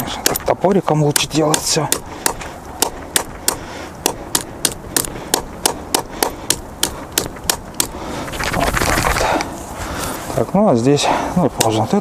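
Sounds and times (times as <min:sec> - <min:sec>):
hatchet chopping sticks: 0:00.0 - 0:09.4.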